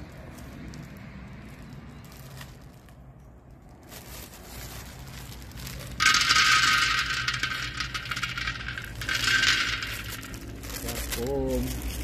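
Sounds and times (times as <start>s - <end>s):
peanuts rattling in a pan: 5.4s - 12.0s.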